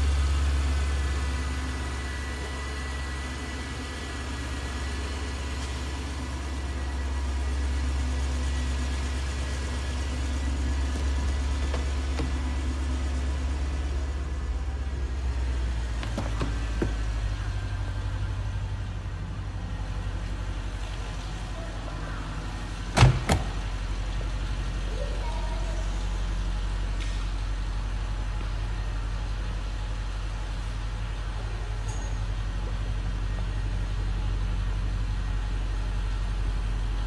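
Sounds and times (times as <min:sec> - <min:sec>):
car engine idling: 0:00.0 - 0:37.0
car door thudding shut: 0:22.9 - 0:23.6.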